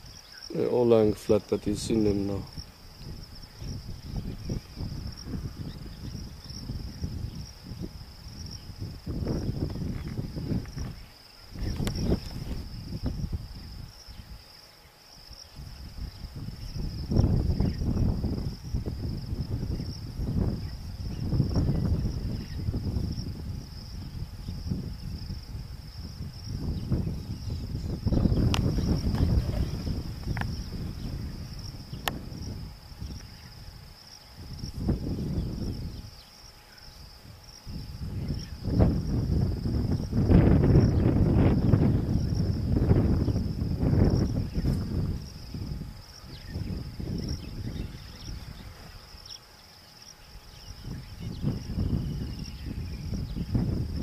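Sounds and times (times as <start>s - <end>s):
insects trilling: 0.0s - 54.0s
low rumbling noise: 15.6s - 36.2s.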